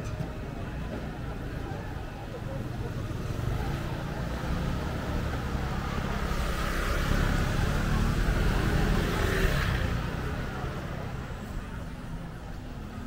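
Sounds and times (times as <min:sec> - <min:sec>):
low traffic rumble: 0:00.0 - 0:13.0
motor vehicle approaching: 0:01.6 - 0:11.4.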